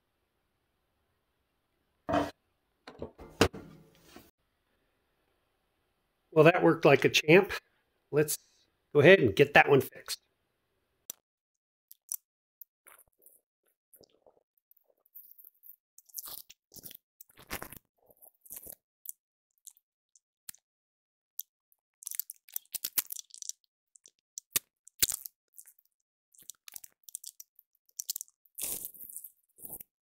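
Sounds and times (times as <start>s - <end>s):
tools handled on wooden workbench: 2.1s - 2.3s, 2.9s - 4.3s.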